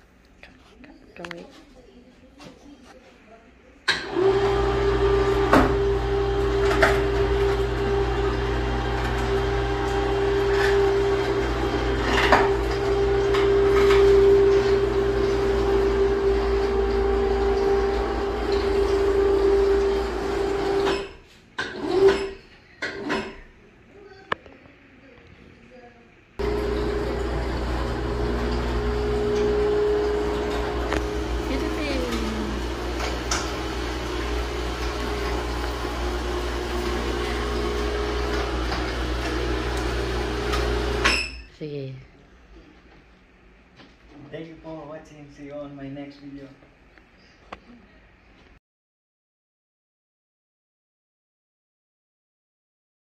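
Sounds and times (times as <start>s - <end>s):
lift motor humming: 4.0s - 21.0s, 26.4s - 41.1s.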